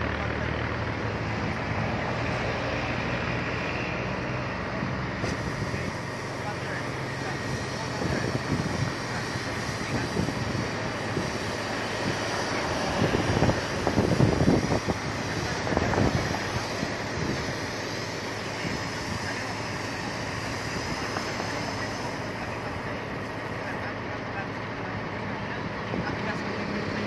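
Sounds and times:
fire hose spraying water: 0.0 - 27.0
pump engine running: 0.0 - 27.0
low gusts: 7.5 - 23.1.

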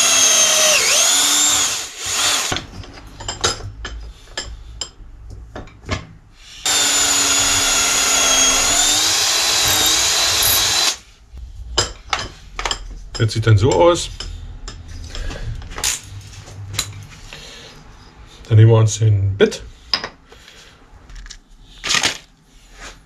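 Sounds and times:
cordless drill whining: 0.0 - 2.6, 6.6 - 11.0.

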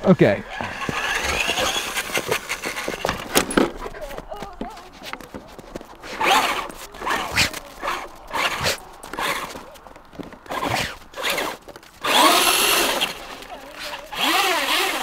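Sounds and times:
tyres scrabbling in snow: 0.0 - 15.0
electric motor revving whine: 0.4 - 3.6, 6.1 - 9.6, 10.5 - 15.0.

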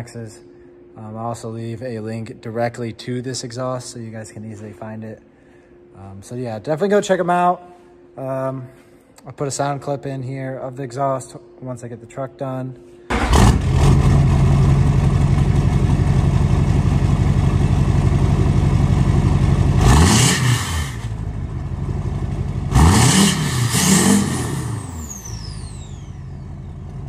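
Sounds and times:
diesel engine idling and revving: 13.2 - 27.0.

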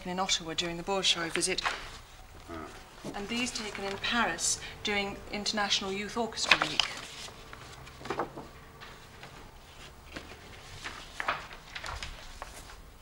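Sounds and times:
papers rustling and knocking: 1.2 - 4.8, 5.7 - 12.9.

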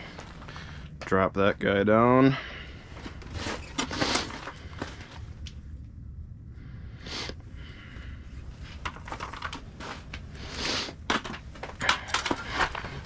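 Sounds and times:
steady low rumble: 0.0 - 13.0
gear rustling: 8.5 - 13.0.

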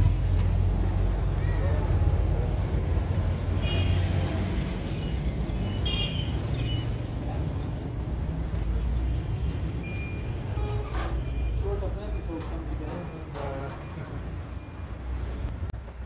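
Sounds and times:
low vehicle rumble: 0.0 - 3.6.

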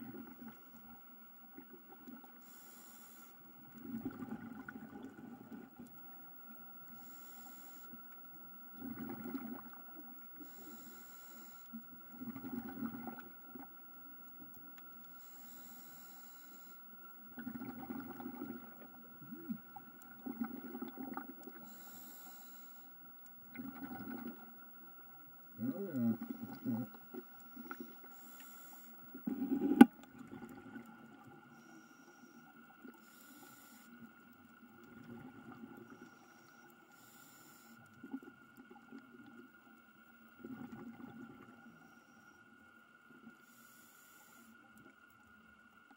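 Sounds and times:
faint steady tone: 0.0 - 45.9
diver breathing through regulator: 2.4 - 3.4, 6.9 - 8.0, 10.4 - 13.1, 15.1 - 16.8, 21.6 - 23.0, 25.5 - 29.9, 36.0 - 37.8.

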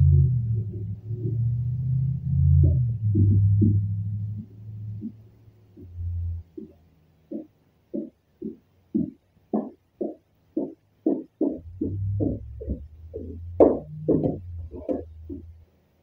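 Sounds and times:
low hum: 0.0 - 7.4, 11.6 - 15.7
background music with steady beat: 0.0 - 16.0.

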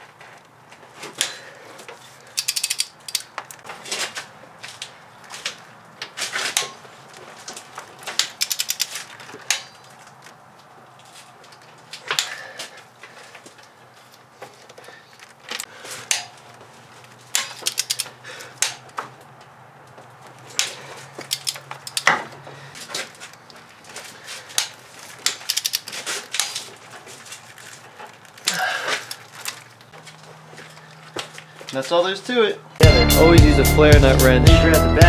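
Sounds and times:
ratchet wrench clicking: 2.4 - 3.6, 8.2 - 9.6, 17.4 - 18.2, 21.3 - 22.1, 25.3 - 25.9.

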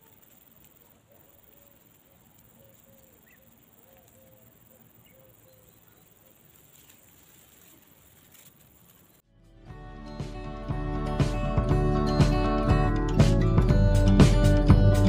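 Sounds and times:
steady high hiss: 0.0 - 9.2.

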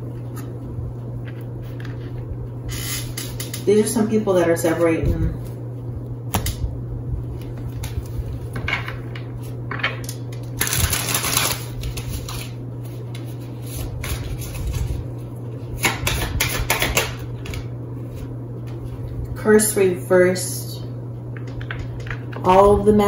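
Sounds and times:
steady low hum: 0.0 - 23.0
cards being shuffled: 10.2 - 15.0.

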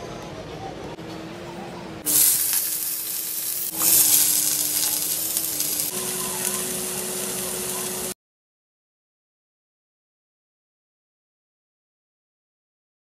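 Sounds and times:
food sizzling in pan: 2.1 - 8.2.

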